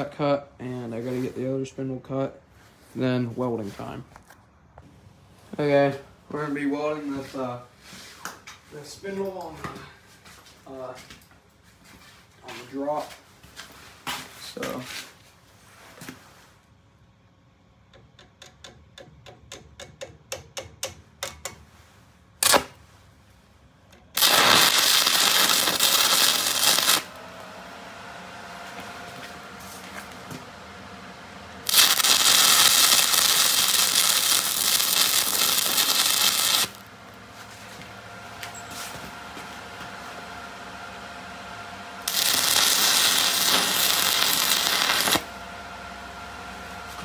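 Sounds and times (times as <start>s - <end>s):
welding arc crackling and hissing: 22.4s - 22.8s, 24.1s - 27.2s, 31.6s - 36.9s, 42.0s - 45.3s.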